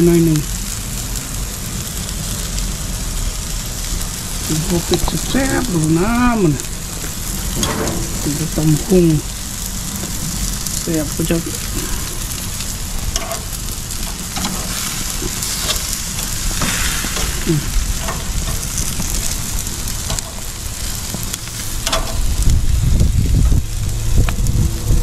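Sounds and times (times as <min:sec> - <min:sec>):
low rumble: 0:00.0 - 0:25.0
meat sizzling on a grill: 0:00.0 - 0:25.0
metal tongs clicking: 0:13.1 - 0:15.9.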